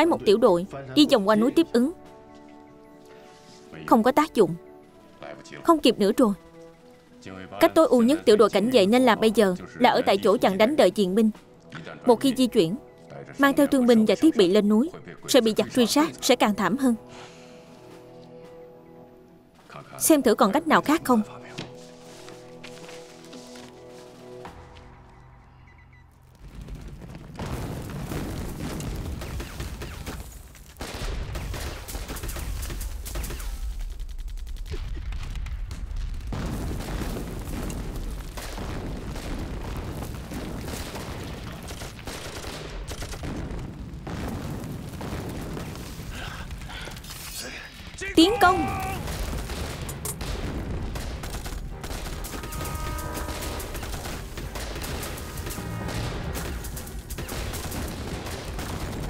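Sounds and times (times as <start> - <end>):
rapid gunfire: 27.4 - 47.2, 49.0 - 59.0.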